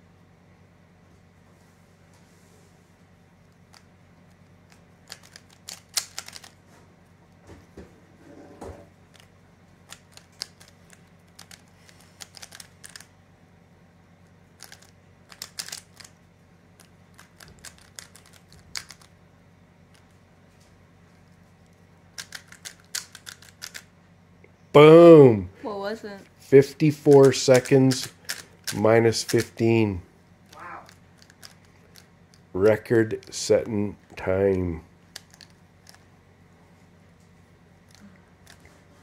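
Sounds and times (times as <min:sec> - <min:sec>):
puzzle cube layers clicking: 0:04.7 - 0:06.6, 0:09.9 - 0:13.1, 0:14.6 - 0:16.1, 0:16.8 - 0:19.1, 0:22.2 - 0:23.8, 0:26.9 - 0:29.6, 0:30.9 - 0:32.1, 0:35.1 - 0:36.0.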